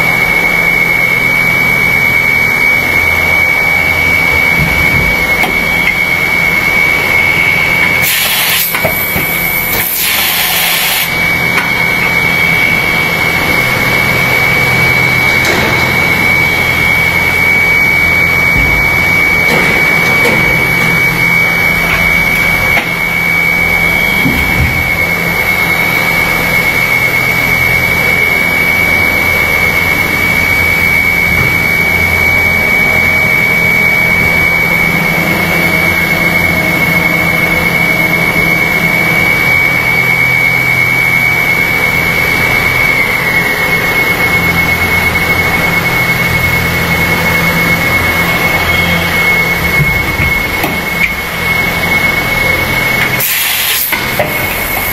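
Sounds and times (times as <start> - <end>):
injection molding machine running: 0.0 - 54.9.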